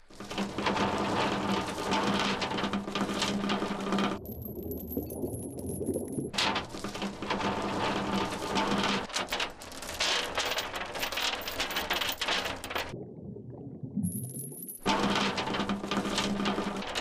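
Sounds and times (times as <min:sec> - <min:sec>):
anchor chain clattering out: 0:06.4 - 0:12.9.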